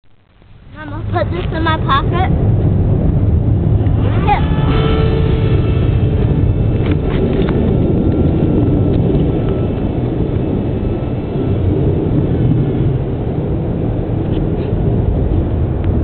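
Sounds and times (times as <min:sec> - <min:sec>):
loud low rumbling noise: 0:00.0 - 0:16.0
thin whine of electric motor: 0:03.8 - 0:13.3.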